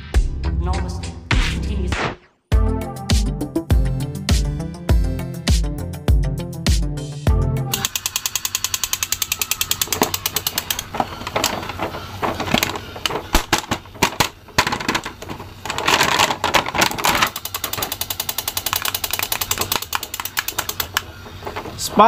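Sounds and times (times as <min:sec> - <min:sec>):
toy rattling with rapid clicks: 0:07.8 - 0:21.8
plastic packaging rustling: 0:09.8 - 0:22.0.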